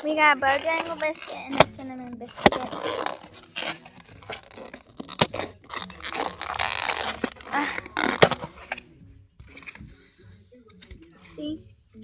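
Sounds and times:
paper packaging crinkling: 0.0 - 8.8.

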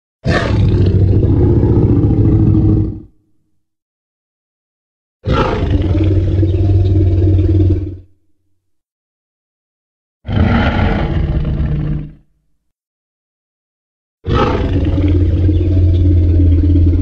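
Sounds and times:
dinosaur roar: 0.2 - 3.2, 5.2 - 8.1, 10.3 - 12.3, 14.3 - 17.0.

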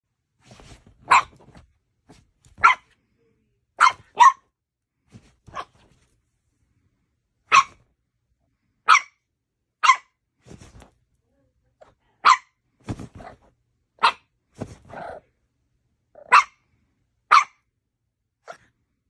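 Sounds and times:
puppy barking: 1.0 - 1.4, 2.6 - 2.9, 3.8 - 4.5, 5.5 - 5.8, 7.5 - 7.8, 8.8 - 9.2, 9.8 - 10.2, 12.2 - 12.6, 14.0 - 14.3, 16.2 - 16.6, 17.3 - 17.7.

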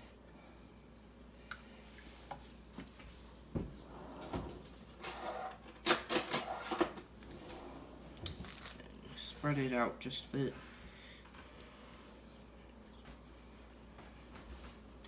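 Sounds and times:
cutlery clattering in drawer: 5.0 - 7.0.

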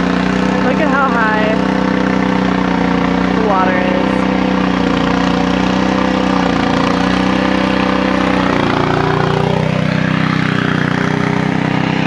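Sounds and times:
small gasoline pump engine running: 0.0 - 12.0.

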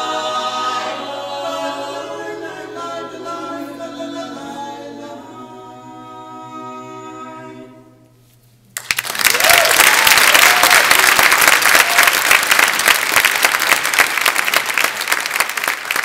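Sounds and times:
audience applause: 8.8 - 16.0
cheering whoops: 9.2 - 12.4.

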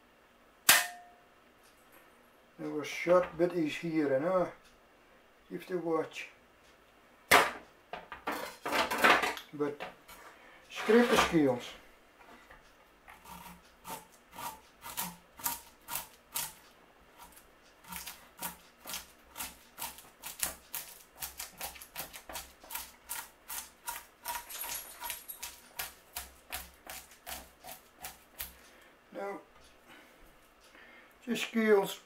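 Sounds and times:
knife scraping fish scales: 13.2 - 16.6, 17.2 - 28.6.

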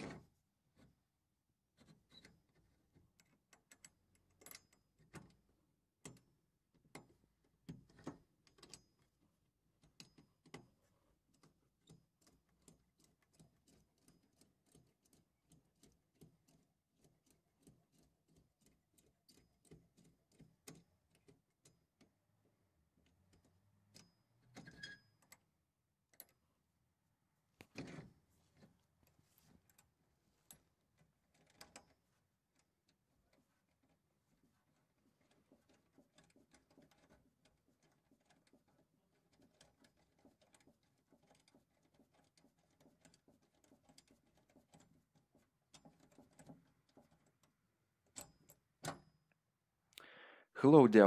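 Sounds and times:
key clicking in padlock: 1.8 - 6.3, 7.8 - 9.1, 9.8 - 22.1.

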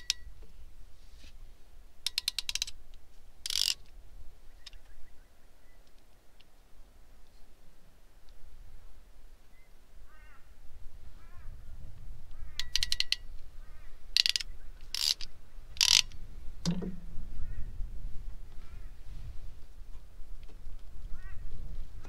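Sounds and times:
hand ratchet clicking: 0.0 - 0.3, 2.0 - 2.8, 3.4 - 3.8, 12.6 - 13.3, 14.2 - 16.2.

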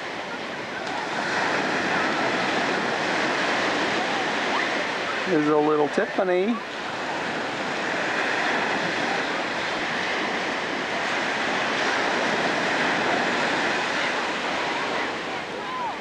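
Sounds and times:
ocean surf breaking: 0.0 - 16.0.

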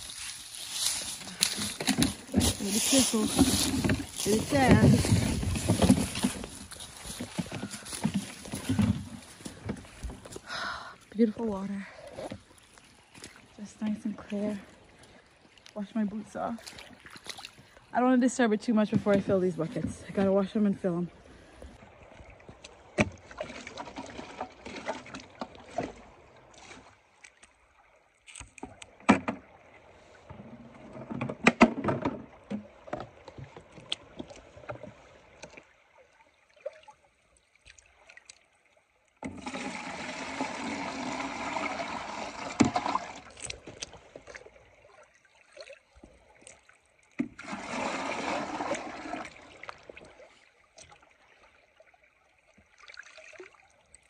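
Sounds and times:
water sloshing: 0.0 - 54.0
water splashing: 0.0 - 54.0
plastic buckets knocking: 1.4 - 10.4.

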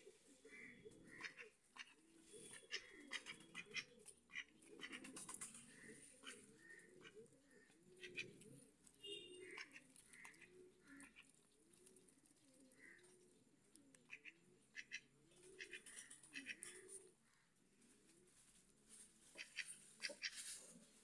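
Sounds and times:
ducks calling: 0.5 - 11.3, 14.1 - 16.9.

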